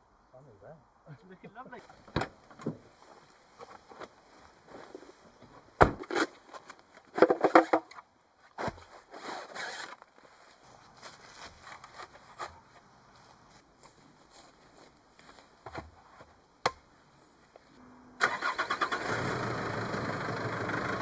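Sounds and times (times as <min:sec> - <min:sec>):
plastic scraping and rustling: 0:06.0 - 0:08.0, 0:08.6 - 0:10.4, 0:11.1 - 0:12.8.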